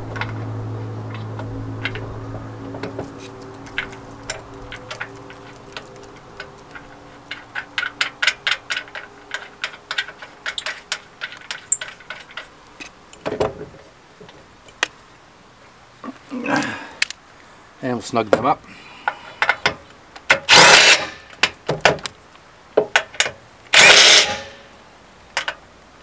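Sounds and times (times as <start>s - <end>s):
metallic clicking of nuts and bolts: 2.7s - 13.8s, 19.0s - 22.2s, 22.8s - 24.7s, 25.3s - 25.6s.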